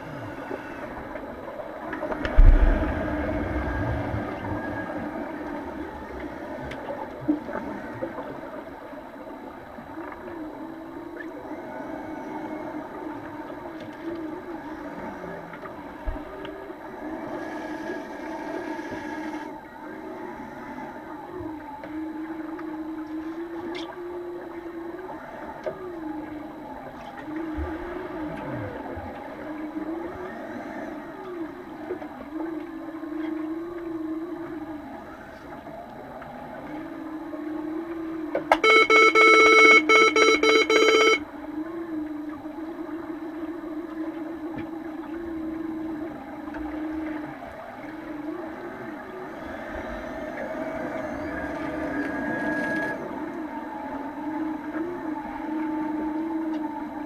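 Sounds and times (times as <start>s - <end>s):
underwater water noise: 0.0s - 57.0s
wavering underwater hum: 0.0s - 57.0s
buzzing horn tone: 37.9s - 41.9s.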